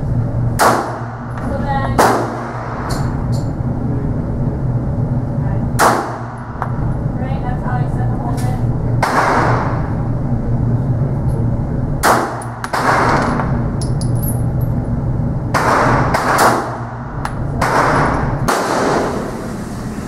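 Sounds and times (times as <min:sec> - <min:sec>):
steady low hum: 0:00.0 - 0:20.0
pistol shots echoing: 0:00.6 - 0:01.3, 0:02.0 - 0:02.8, 0:05.8 - 0:06.4, 0:12.0 - 0:13.4, 0:15.5 - 0:17.0, 0:17.6 - 0:19.2.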